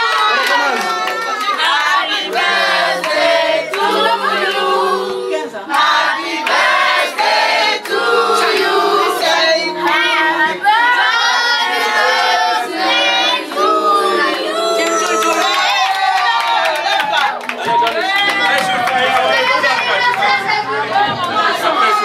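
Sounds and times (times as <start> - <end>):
group of voices singing: 0.0 - 15.0, 19.0 - 22.0
hand clapping: 14.8 - 20.4.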